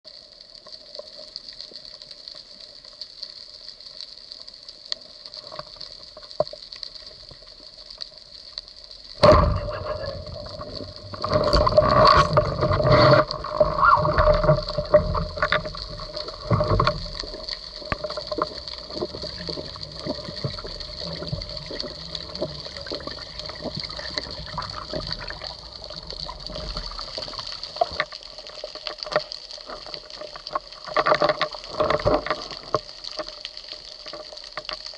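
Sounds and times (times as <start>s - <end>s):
underwater hiss with crackling: 0.1s - 34.9s
underwater clicks: 9.1s - 34.9s
knocking and churning water: 9.2s - 28.2s.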